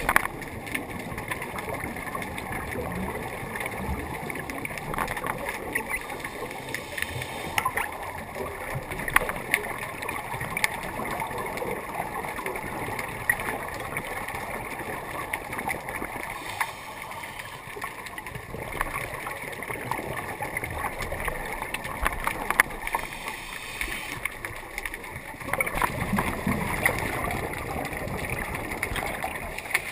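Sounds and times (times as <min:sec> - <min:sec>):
scuba breathing bubbling hiss: 0:06.1 - 0:07.8, 0:16.2 - 0:18.1, 0:22.8 - 0:24.5.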